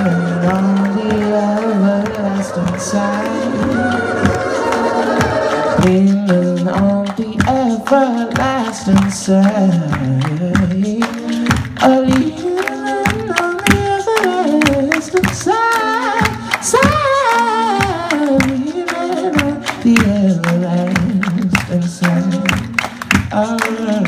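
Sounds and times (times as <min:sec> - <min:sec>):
man singing into microphone: 0:00.0 - 0:04.5, 0:05.6 - 0:24.0
looped vocal layers: 0:00.0 - 0:07.4.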